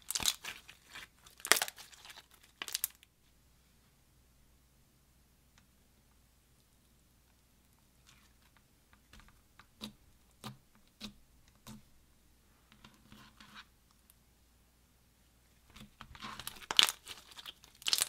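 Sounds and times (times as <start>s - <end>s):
slime popping: 0.0s - 3.0s, 16.4s - 18.0s
crunchy slime squishing: 0.0s - 3.1s, 15.6s - 18.0s.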